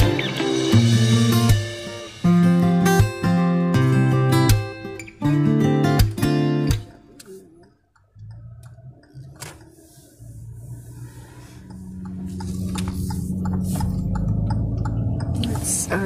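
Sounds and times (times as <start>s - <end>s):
strummed acoustic guitar music: 0.0s - 7.6s
car engine hum: 7.1s - 16.0s.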